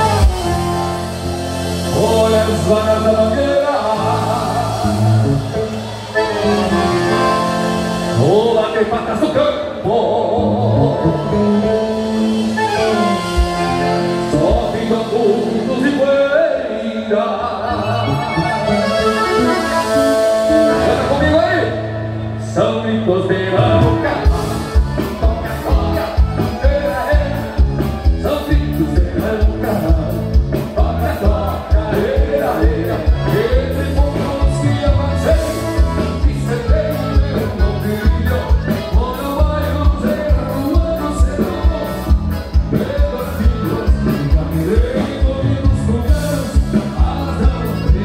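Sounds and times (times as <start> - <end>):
strong bass: 0.0 - 16.4, 17.6 - 48.0
live band music: 0.0 - 48.0
person singing: 0.0 - 48.0.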